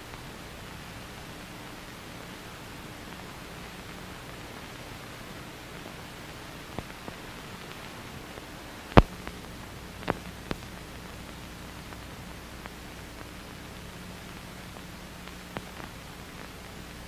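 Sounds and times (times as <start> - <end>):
faint hum: 0.0 - 17.0
film soundtrack hiss: 0.0 - 17.0
clicks and pops: 10.0 - 12.0.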